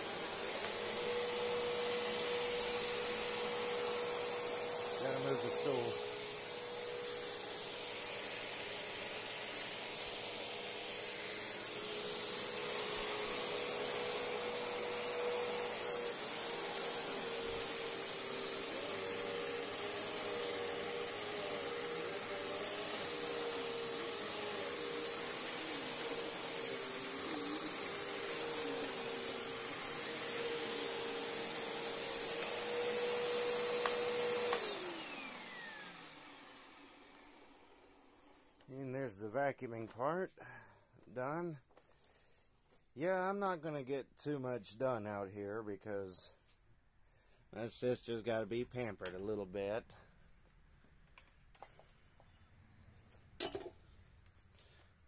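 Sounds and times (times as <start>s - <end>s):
vacuum motor spinning down: 0.0s - 38.0s
upright vacuum cleaner running: 0.0s - 39.0s.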